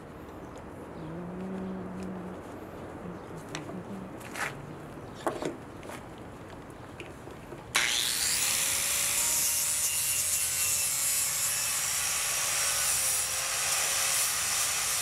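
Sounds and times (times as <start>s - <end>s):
wire wheel grinder scrubbing wood: 7.8s - 15.0s.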